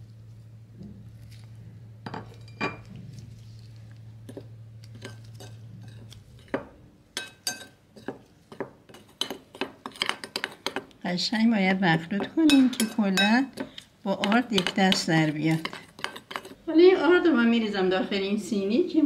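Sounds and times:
low hum: 0.0s - 7.1s
spoon clinking in glass bowl: 7.2s - 8.1s, 12.5s - 13.4s.

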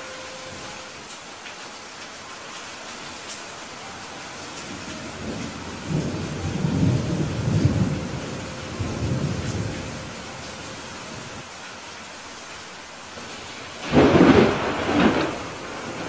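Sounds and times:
steady rain: 0.0s - 16.0s
thunder rumble: 4.7s - 11.4s, 13.2s - 16.0s.

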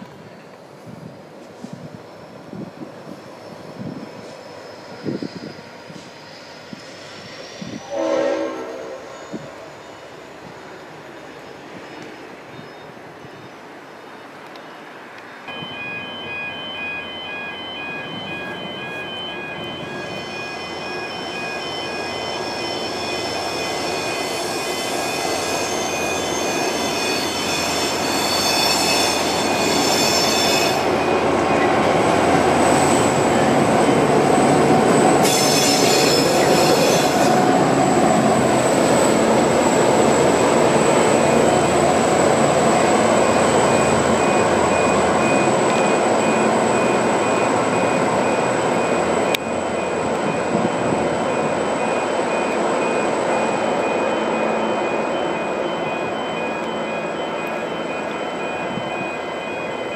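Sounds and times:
diesel locomotive engine: 0.0s - 59.9s
wheel squeal: 4.2s - 7.9s, 21.6s - 30.9s, 35.1s - 39.1s.

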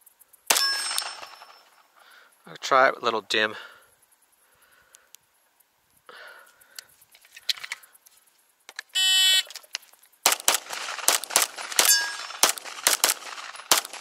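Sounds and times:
rapid pistol shots: 0.5s - 1.7s, 10.2s - 14.0s.

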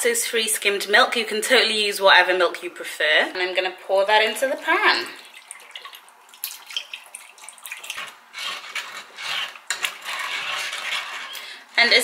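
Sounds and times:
milk pouring into saucepan: 4.3s - 11.6s
utensil scraping a pan: 7.6s - 12.0s.

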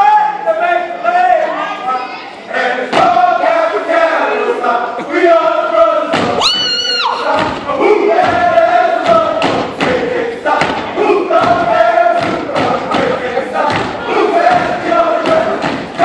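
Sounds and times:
group chanting in unison: 1.3s - 16.0s
stomps on stage floor: 6.1s - 6.6s, 7.3s - 16.0s
shrill high-pitched cry: 6.4s - 7.3s.

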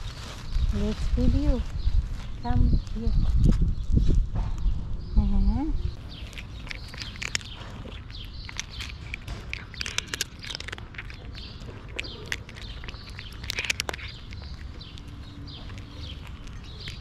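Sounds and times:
cat crunching dry kibble: 6.0s - 17.0s.

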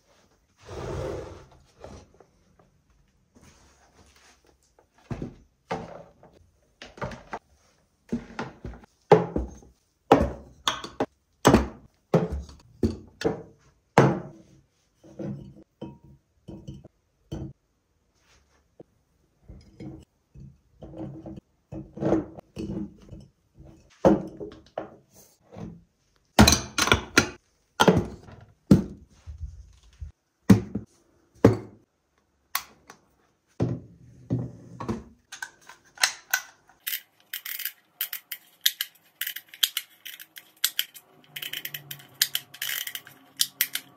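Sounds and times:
glass jars knocking and clinking: 15.2s - 17.5s, 26.4s - 28.2s, 36.8s - 43.9s.

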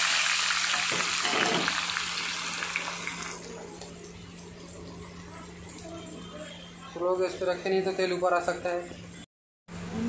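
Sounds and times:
fries sizzling in hot oil: 0.0s - 6.3s.

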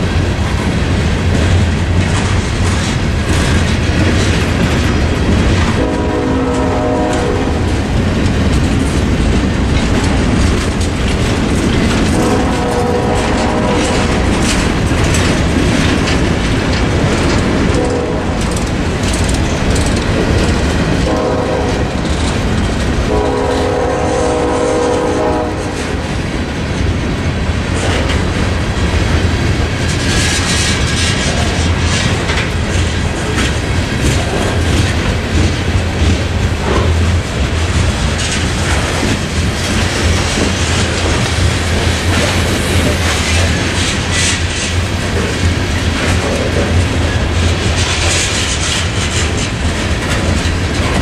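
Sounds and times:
freight train wheels clacking: 0.0s - 51.0s
train horn: 5.8s - 7.7s, 12.1s - 14.4s, 17.7s - 18.6s, 21.0s - 22.1s, 23.1s - 26.0s.

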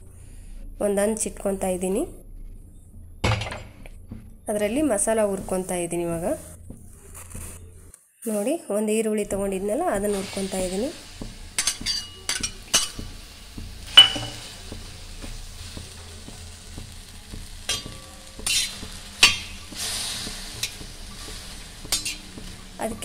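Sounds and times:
onions sizzling on a hot pan: 9.4s - 23.0s
metal spatula scraping a pan: 10.1s - 14.6s, 17.5s - 22.8s.

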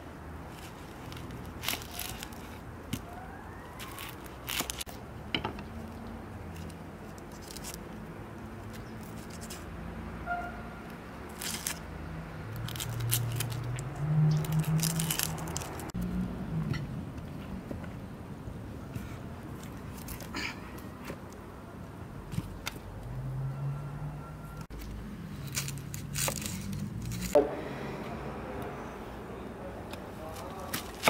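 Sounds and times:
onion skin crackling: 0.5s - 5.0s, 6.5s - 9.7s, 11.2s - 16.0s, 24.7s - 27.4s.

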